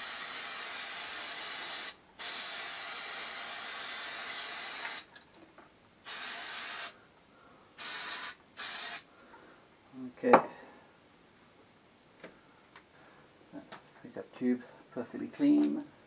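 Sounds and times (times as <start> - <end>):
aerosol can spraying: 6.1 - 7.0, 7.8 - 9.0.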